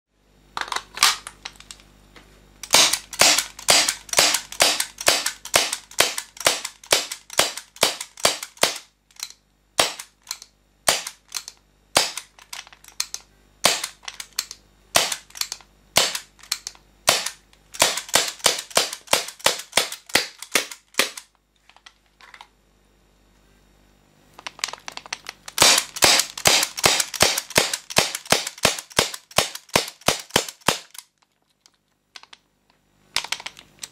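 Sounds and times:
airsoft pistol firing pops: 15.0s - 16.2s, 25.6s - 31.0s.

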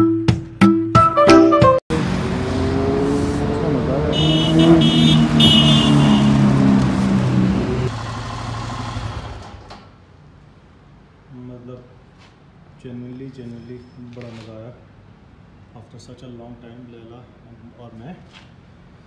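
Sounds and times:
vehicle engines passing: 1.9s - 9.9s.

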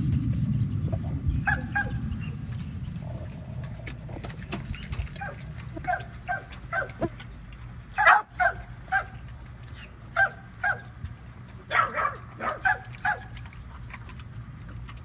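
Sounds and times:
dog barking: 1.4s - 2.0s, 5.2s - 7.1s, 8.0s - 9.2s, 10.2s - 10.9s, 11.7s - 13.3s.

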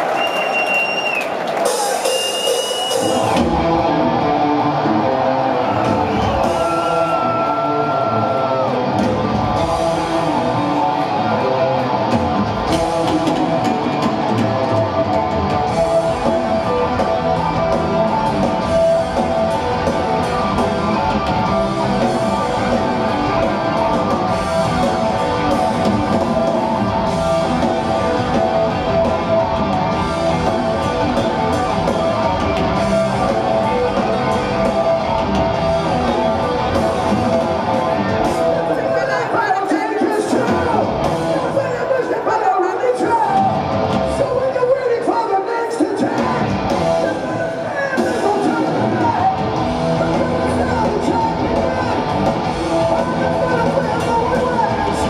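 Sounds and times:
heavy metal band playing live: 1.6s - 55.0s
lead guitar melody: 3.0s - 39.0s.

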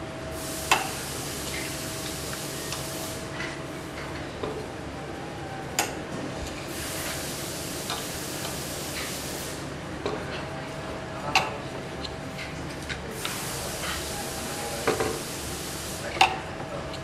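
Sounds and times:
steady hiss: 0.4s - 3.3s, 6.7s - 9.7s, 13.2s - 16.2s.

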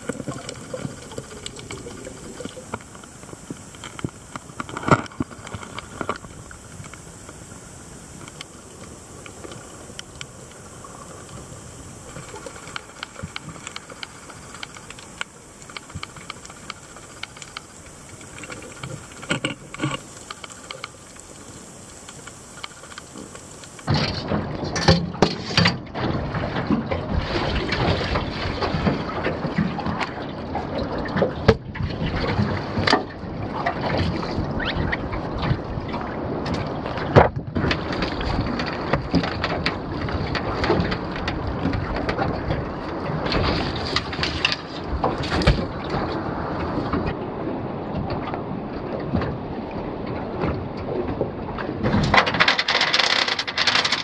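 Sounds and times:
water slapping boat hull: 0.0s - 54.0s
anchor chain rattling on metal: 52.2s - 54.0s.

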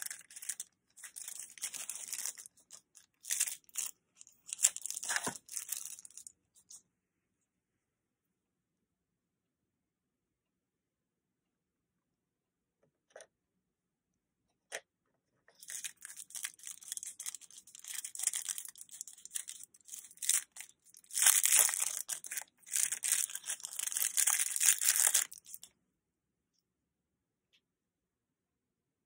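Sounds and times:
packaging bag crinkling and tearing: 0.0s - 6.3s, 15.6s - 25.7s.

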